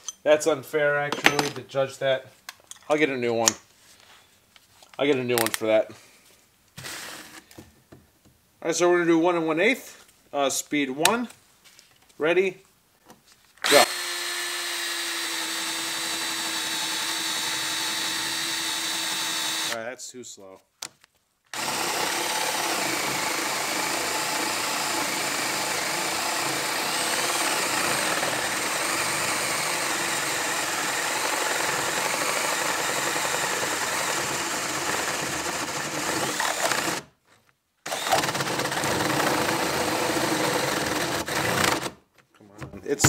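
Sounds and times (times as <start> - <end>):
drill boring through wood: 13.6 - 19.8, 21.5 - 37.1, 37.8 - 42.0.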